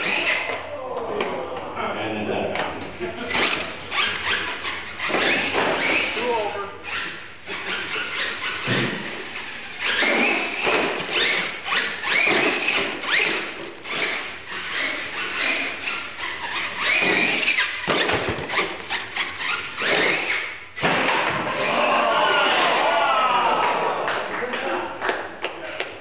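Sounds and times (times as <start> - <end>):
toy truck motor whine: 0.0 - 0.5, 3.2 - 21.9
tyre squeal: 0.0 - 0.6, 3.2 - 22.8.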